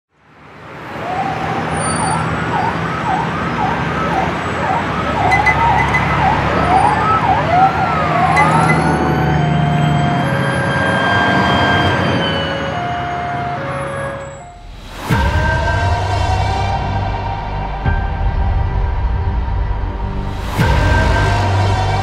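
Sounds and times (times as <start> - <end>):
sirens wailing: 0.3 - 22.0.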